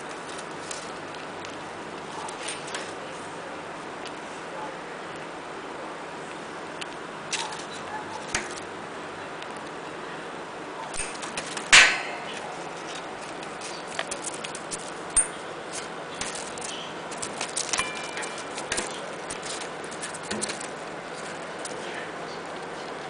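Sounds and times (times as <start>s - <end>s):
sharp loud clack: 11.0s - 12.3s.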